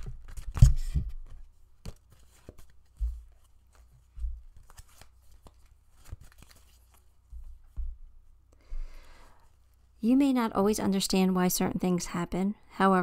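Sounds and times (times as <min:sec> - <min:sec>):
cards being shuffled: 0:00.0 - 0:07.9.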